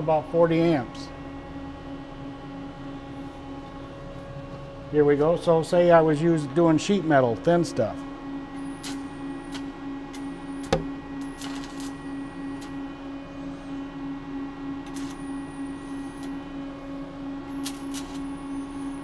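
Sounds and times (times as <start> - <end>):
welding machine hum: 1.7 - 19.0
welding rod crackles: 11.4 - 11.9, 14.9 - 15.1, 17.6 - 18.2.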